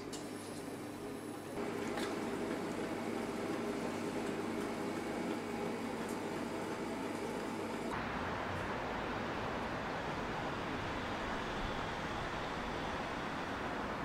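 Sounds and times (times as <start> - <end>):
equipment or ventilation hum: 0.0 - 14.0.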